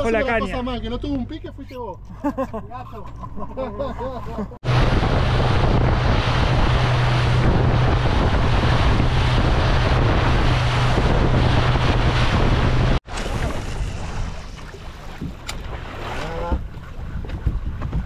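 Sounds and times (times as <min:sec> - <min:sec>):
motorboat engine hum: 0:00.0 - 0:18.0
rushing water: 0:04.6 - 0:17.1
wind on microphone: 0:04.6 - 0:18.0.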